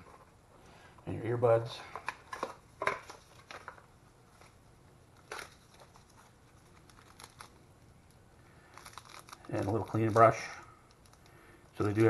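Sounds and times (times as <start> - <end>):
cardboard packaging rustling: 1.9 - 4.6, 5.2 - 7.6, 8.7 - 11.2.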